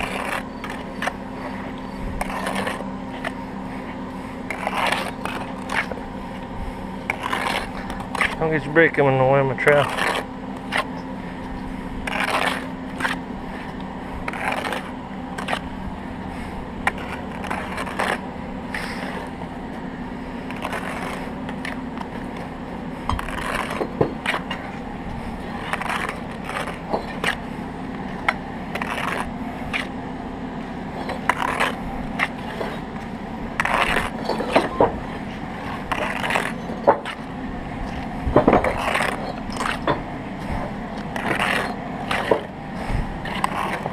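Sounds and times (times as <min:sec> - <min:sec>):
trowel scraping wet mortar: 0:00.0 - 0:43.9
bricks tapping: 0:23.1 - 0:24.8, 0:31.0 - 0:42.6.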